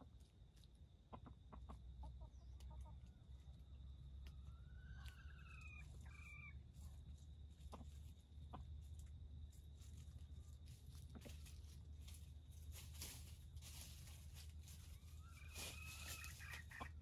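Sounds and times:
dry leaves crackling: 5.8 - 17.0
rooster crowing: 15.1 - 16.8.

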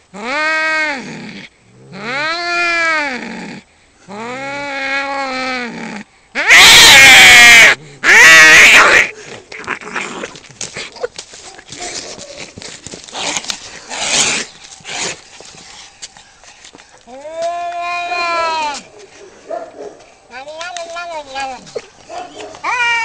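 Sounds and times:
cats yowling: 6.4 - 10.0, 17.4 - 18.9, 21.2 - 23.0
cats screaming: 6.4 - 10.1, 17.4 - 18.9, 22.4 - 23.0
cats scuffling: 10.3 - 17.8.

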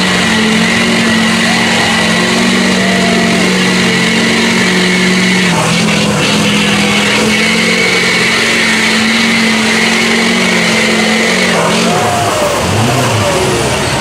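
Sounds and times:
people shouting: 0.0 - 4.9, 11.0 - 13.8
truck engine revving: 0.0 - 14.0.

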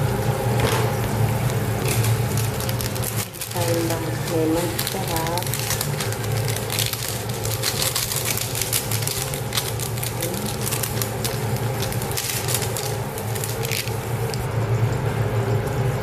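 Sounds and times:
vegetables sizzling in a frying pan: 0.0 - 14.5
low steady hum: 0.0 - 16.0
crackles and pops: 1.0 - 14.5.

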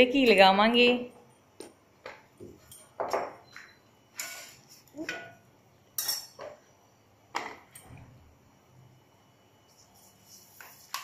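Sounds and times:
metal utensils clinking: 6.0 - 6.4.

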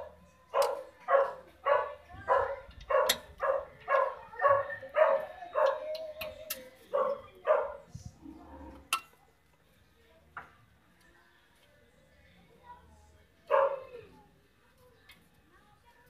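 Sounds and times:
dog barking: 0.0 - 5.9, 6.9 - 7.9, 13.5 - 14.0.

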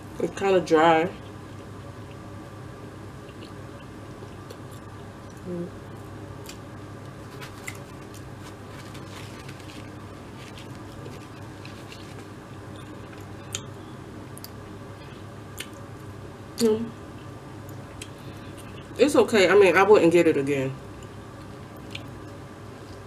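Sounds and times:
low room hum: 0.0 - 23.0
person chewing food: 3.2 - 5.5, 6.4 - 15.9, 17.2 - 18.9, 21.0 - 23.0
person humming: 5.4 - 5.8.

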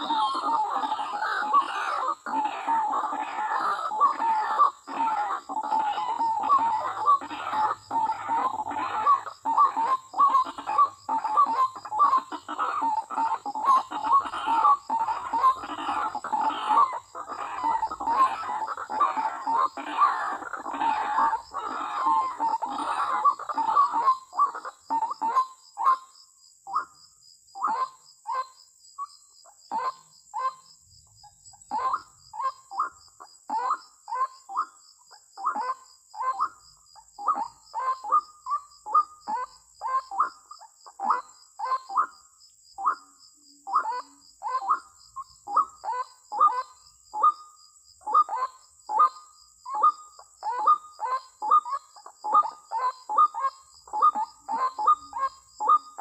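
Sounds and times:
waterhen calling: 0.0 - 26.0, 31.6 - 34.7, 48.1 - 56.0.

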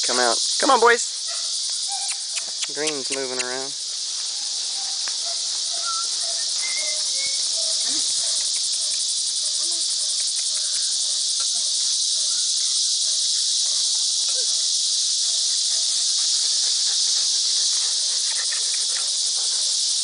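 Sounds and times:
insects chorus: 0.0 - 20.0
puppies scuffling and vocalizing: 15.2 - 19.8.

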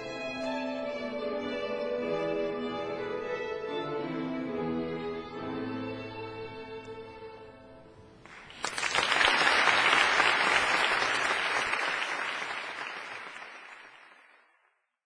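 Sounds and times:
audience applauding: 8.2 - 14.8.

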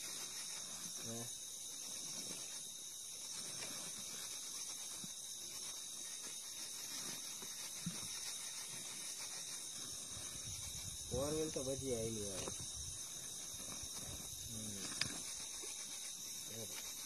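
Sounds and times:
crickets chirring: 0.0 - 17.0.

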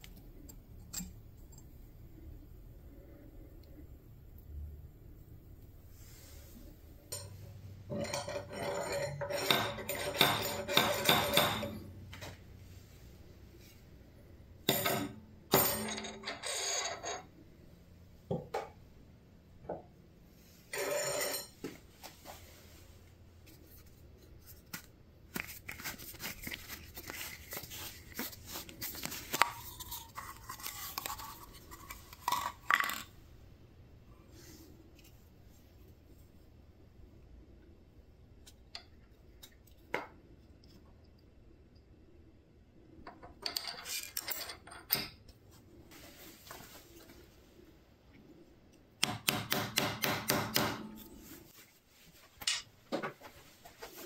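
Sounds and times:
metal tooling clinking and scraping: 7.1 - 11.8, 14.7 - 17.3, 20.7 - 21.6, 43.4 - 45.2.

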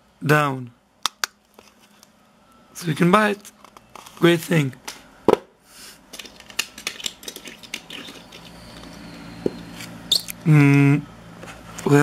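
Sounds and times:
person's voice: 11.8 - 12.0.

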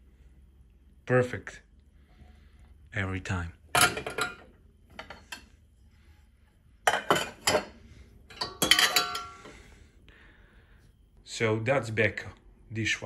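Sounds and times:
metal pots clanking on wire rack: 6.9 - 7.7, 8.3 - 9.5.

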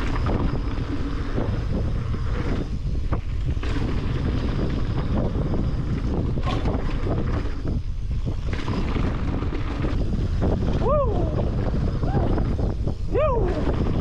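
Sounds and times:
bike tyres rattling on gravel: 0.0 - 14.0
wind rumbling on microphone: 0.0 - 14.0.

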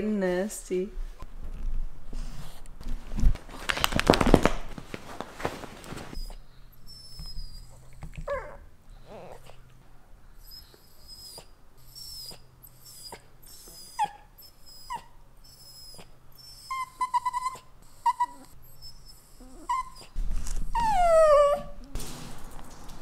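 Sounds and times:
dog whining: 6.1 - 9.7, 10.3 - 22.0.

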